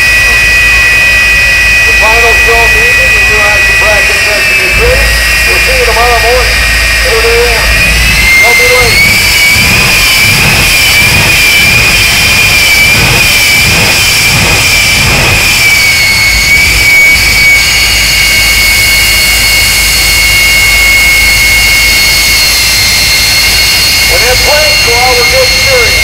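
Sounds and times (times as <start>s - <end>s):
jet engine roar with high whine: 0.0s - 26.0s.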